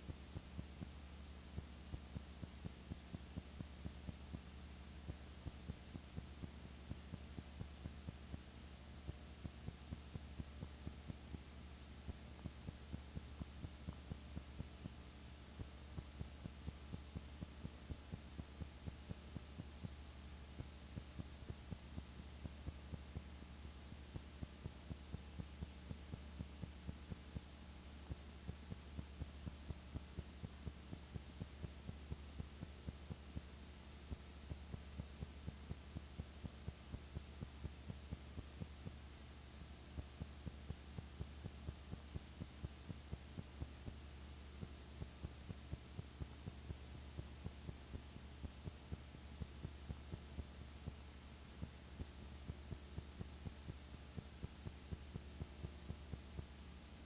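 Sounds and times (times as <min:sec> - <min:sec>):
low electrical hum: 0:00.0 - 0:57.0
soft regular clicks: 0:00.0 - 0:57.0.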